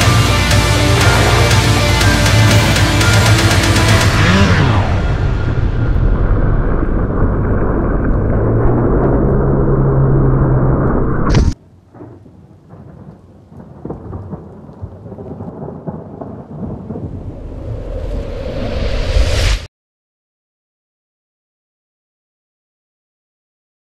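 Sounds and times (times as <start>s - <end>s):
muffled rumbling drone: 0.0s - 11.6s.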